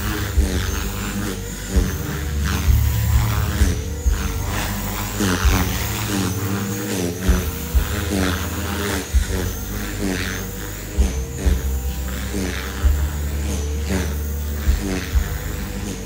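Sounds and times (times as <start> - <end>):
low thumps: 0.0 - 10.0
rc helicopter motor whine: 0.0 - 16.0.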